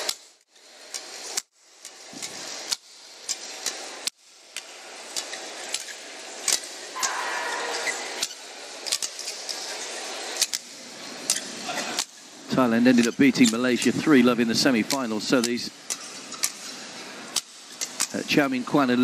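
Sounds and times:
murmur of arena crowd: 5.1 - 19.0
rackets hitting shuttlecock: 6.5 - 9.2.

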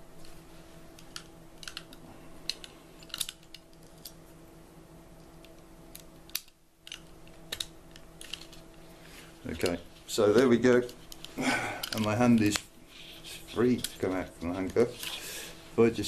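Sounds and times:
faint steady hum: 0.0 - 16.0
metal clicks of handcuff: 2.5 - 4.2.

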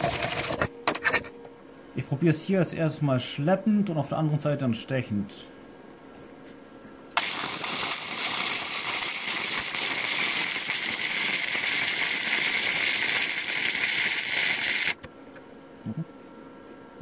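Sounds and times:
welder arc crackling and hissing: 7.2 - 15.1.

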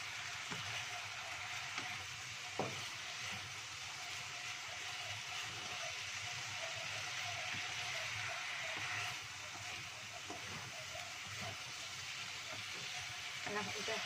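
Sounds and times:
food sizzling in a wok: 0.0 - 14.0
wooden spatula knocking pan: 2.5 - 3.4.

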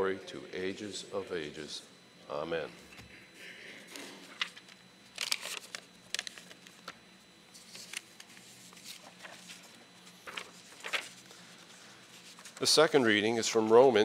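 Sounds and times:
faint steady hum: 0.0 - 14.0
pages turning: 4.3 - 12.8.

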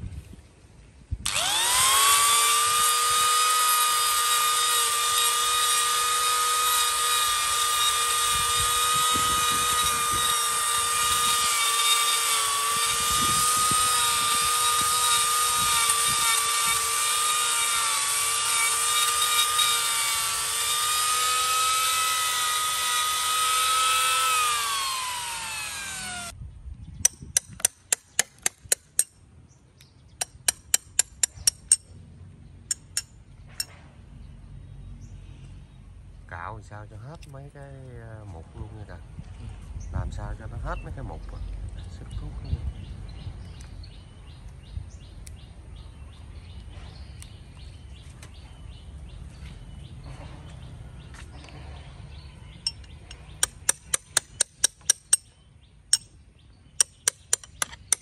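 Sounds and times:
rotary tool whining: 1.2 - 26.4.

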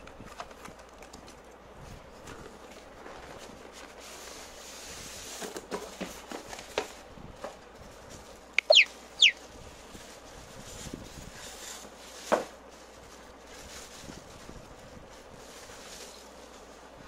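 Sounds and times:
plastic and foam packaging crinkling: 0.1 - 6.9, 9.6 - 16.5
high falling squeaks: 8.6 - 9.4.

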